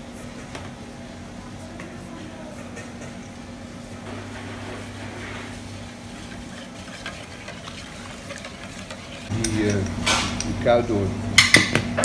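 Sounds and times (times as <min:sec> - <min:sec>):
low hum of kitchen machinery: 0:00.0 - 0:12.0
spoon stirring in metal bowl: 0:04.4 - 0:10.6.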